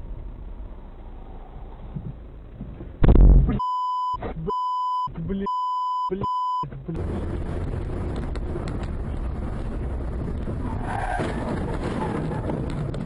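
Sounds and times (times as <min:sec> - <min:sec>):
road noise: 0:00.0 - 0:03.6, 0:06.3 - 0:13.0
high electronic bleeps: 0:03.0 - 0:06.7.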